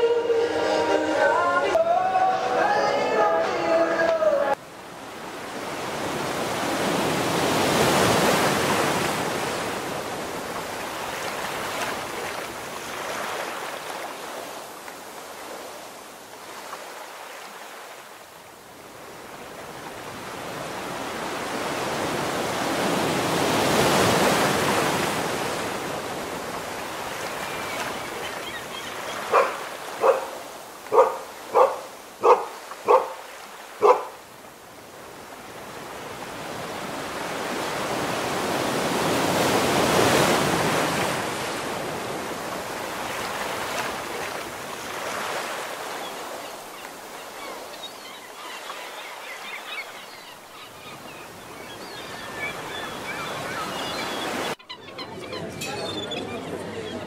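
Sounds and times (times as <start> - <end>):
sea waves breaking on shore: 4.3 - 54.7
dog barking: 29.2 - 34.2.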